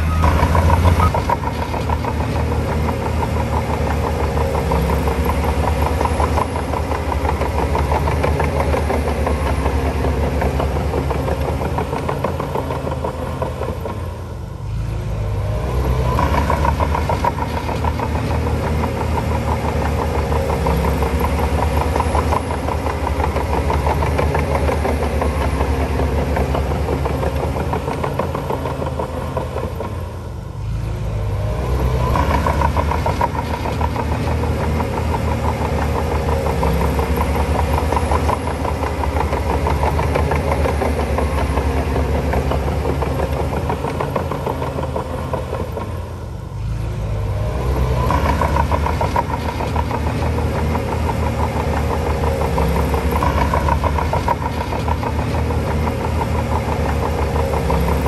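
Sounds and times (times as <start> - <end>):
bulldozer diesel engine rumbling: 0.0 - 58.0.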